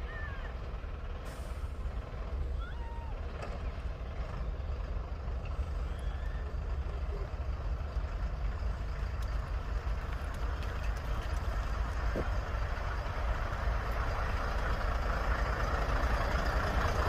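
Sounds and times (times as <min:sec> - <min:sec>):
diesel train engines rumbling: 0:00.0 - 0:17.0.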